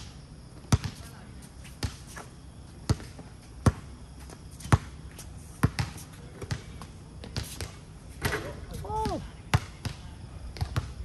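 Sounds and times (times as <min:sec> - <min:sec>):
basketball bouncing on hard court: 0:00.7 - 0:01.0, 0:02.9 - 0:03.9, 0:05.6 - 0:08.4, 0:09.0 - 0:10.0, 0:10.6 - 0:11.0.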